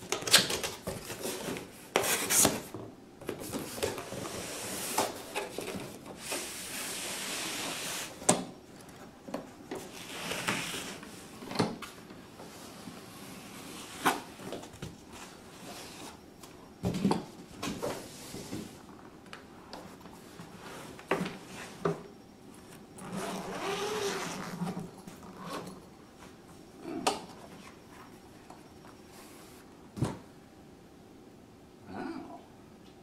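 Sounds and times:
zipper rasp: 23.0s - 25.7s.

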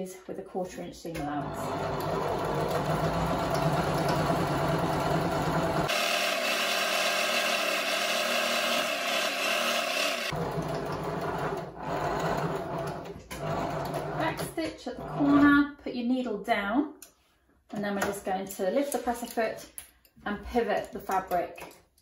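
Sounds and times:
sewing machine stitching: 1.2s - 15.5s.

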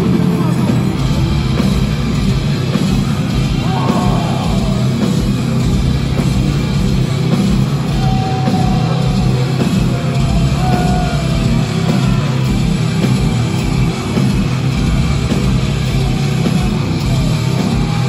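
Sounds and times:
heavy metal band playing live: 0.0s - 18.0s.

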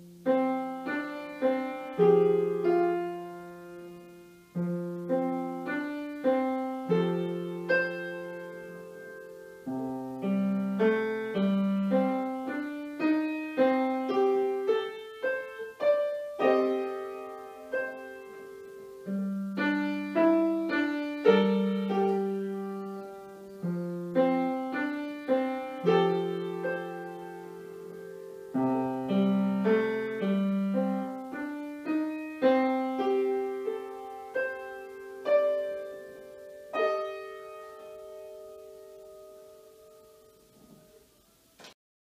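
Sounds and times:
jazzy blues piano piece: 0.0s - 41.8s.

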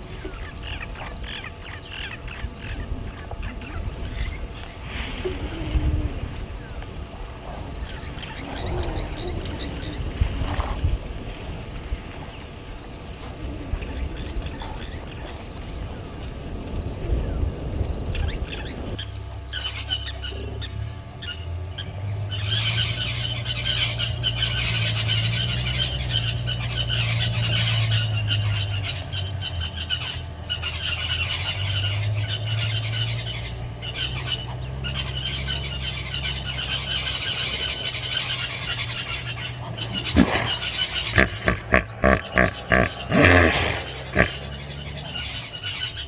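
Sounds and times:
low hum: 0.0s - 46.0s
lapwing metallic alarm calls: 0.2s - 5.1s, 7.8s - 10.1s, 18.1s - 46.0s.

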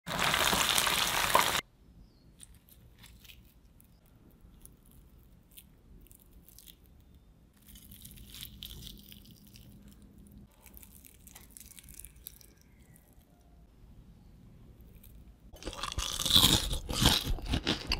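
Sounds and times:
chicken wings sizzling in hot oil: 0.1s - 1.6s
crunchy crackling of fried wing: 2.4s - 13.7s, 14.8s - 17.9s.

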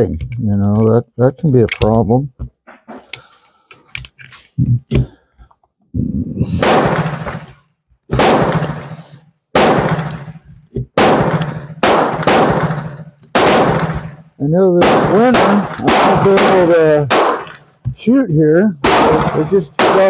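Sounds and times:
gunshots echoing: 6.5s - 17.8s, 18.8s - 20.0s.

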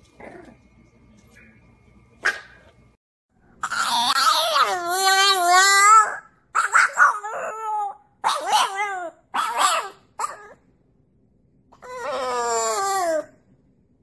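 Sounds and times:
dog howling: 11.8s - 13.4s.

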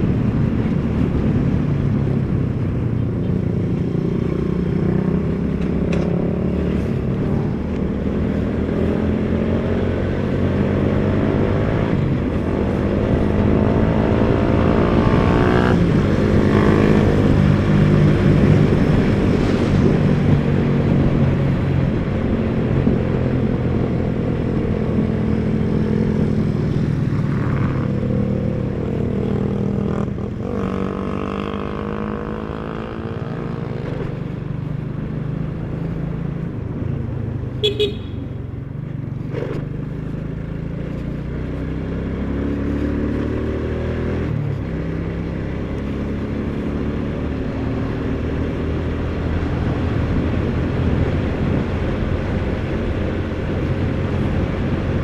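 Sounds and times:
wind and road noise: 0.0s - 55.0s
motorcycle engine running: 34.1s - 43.2s.

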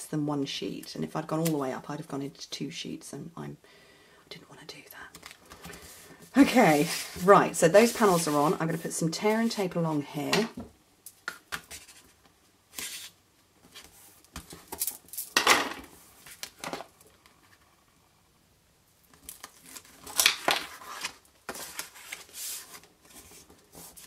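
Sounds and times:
card rustling: 5.1s - 9.6s.

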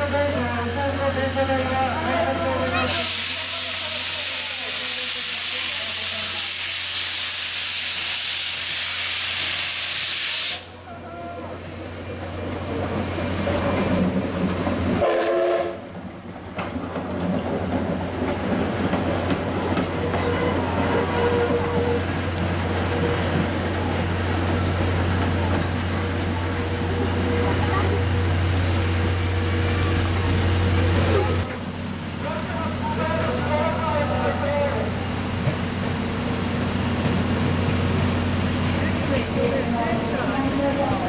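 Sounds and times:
steam locomotive rolling: 0.0s - 41.0s
steam locomotive hissing steam: 2.6s - 10.9s
locomotive whistle toot: 15.0s - 15.8s.

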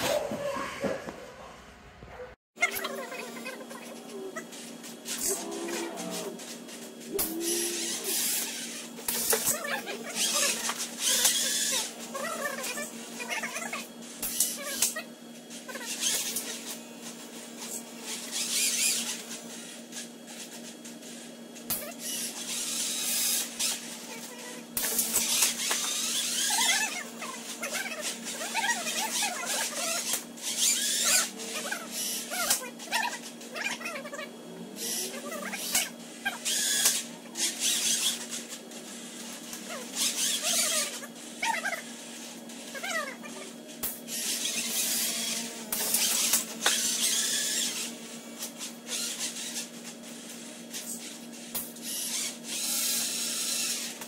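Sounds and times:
steady low hum: 0.0s - 54.0s
high squeaky sped-up voices: 2.6s - 15.1s, 15.7s - 16.7s, 23.6s - 38.4s, 39.2s - 43.6s
robot motors whirring: 2.6s - 54.0s.

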